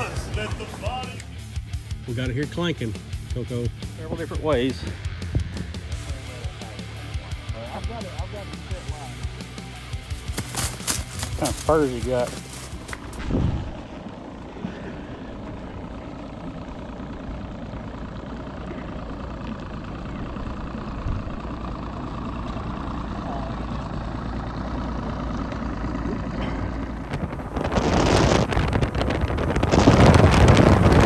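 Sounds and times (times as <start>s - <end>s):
outboard motor idling: 0.0s - 31.0s
wind rush on microphone: 13.0s - 13.9s, 26.8s - 31.0s.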